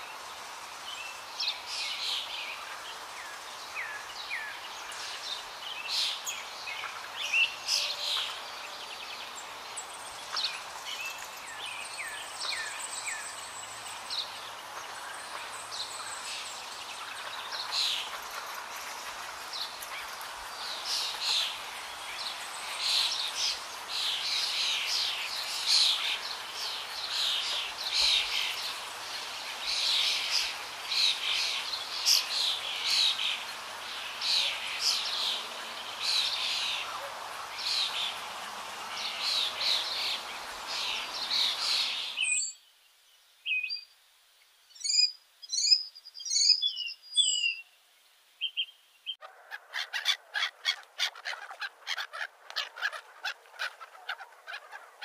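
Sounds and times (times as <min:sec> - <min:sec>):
background hiss: 0:00.0 - 0:55.0
small birds chirping: 0:00.0 - 0:55.0.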